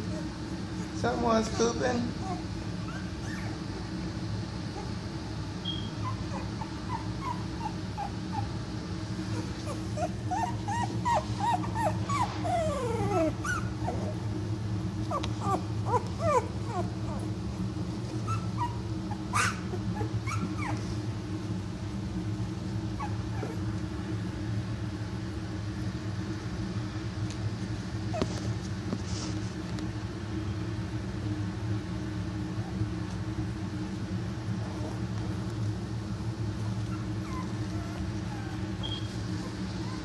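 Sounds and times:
puppies whimpering and squeaking: 0:00.0 - 0:04.0, 0:04.6 - 0:14.4, 0:15.0 - 0:21.0, 0:23.0 - 0:23.7, 0:36.6 - 0:40.0
steady low hum: 0:00.0 - 0:40.0.

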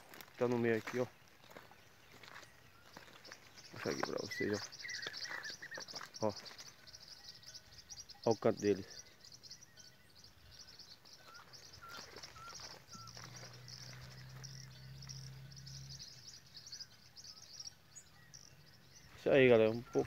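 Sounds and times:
small birds chirping: 0:00.0 - 0:20.0
pulsing insect trill: 0:03.8 - 0:19.2.

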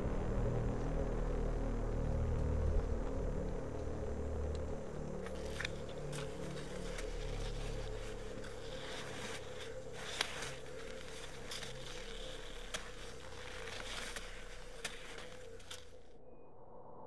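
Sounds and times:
steady low hum: 0:00.0 - 0:17.0
trekking poles clicking: 0:05.2 - 0:16.0
boots crunching in snow: 0:05.3 - 0:15.9.

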